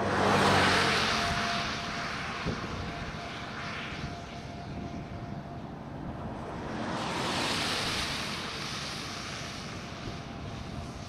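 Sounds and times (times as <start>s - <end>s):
vehicle passing by: 0.0s - 11.0s.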